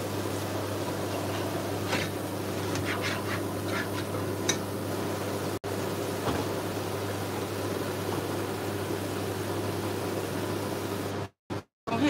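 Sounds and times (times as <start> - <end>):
spoon scraping a pot: 1.8 - 4.2.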